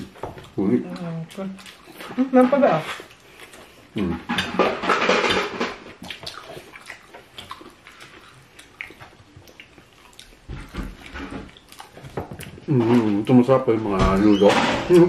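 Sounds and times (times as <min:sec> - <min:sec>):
chewing crunches and clicks: 0:00.0 - 0:02.2, 0:05.9 - 0:13.4.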